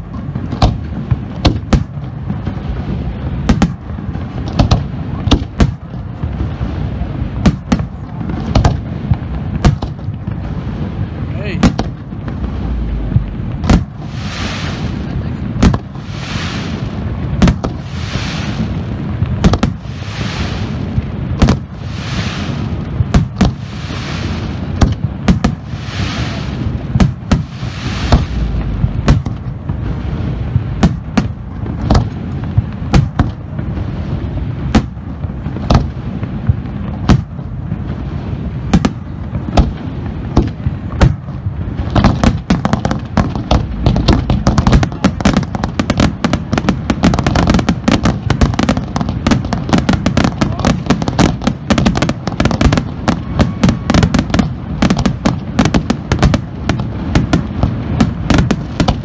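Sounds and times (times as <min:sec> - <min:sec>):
hissing rush: 0:00.0 - 0:32.9, 0:41.6 - 0:59.0
fireworks bursting with sharp bangs: 0:00.0 - 0:59.0
low rumble: 0:02.2 - 0:47.1.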